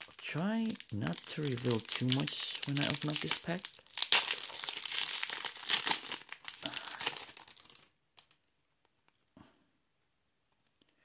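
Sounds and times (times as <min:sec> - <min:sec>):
foil wrapper crinkling and tearing: 0:00.0 - 0:08.4.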